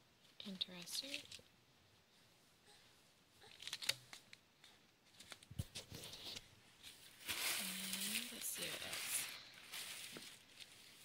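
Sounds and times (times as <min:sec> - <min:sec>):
paper packaging crinkling: 0:03.4 - 0:04.4, 0:05.0 - 0:11.0.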